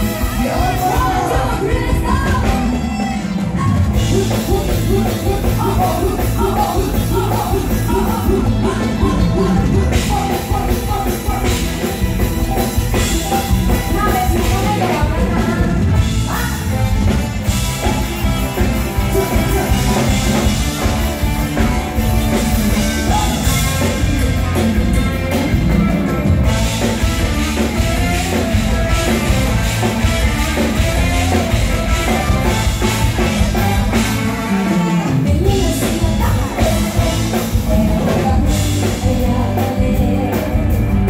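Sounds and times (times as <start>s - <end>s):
live band playing over pa: 0.0s - 41.0s
woman singing: 0.4s - 11.6s, 13.2s - 17.2s, 35.1s - 41.0s.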